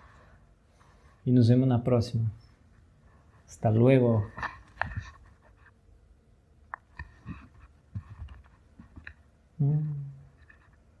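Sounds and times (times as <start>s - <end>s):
man humming: 9.6s - 10.4s.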